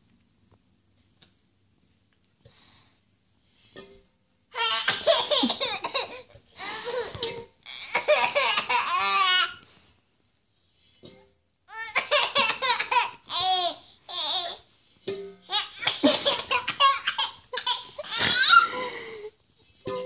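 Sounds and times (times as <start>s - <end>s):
baby laughing: 4.6s - 9.6s, 11.7s - 14.6s, 15.5s - 18.8s.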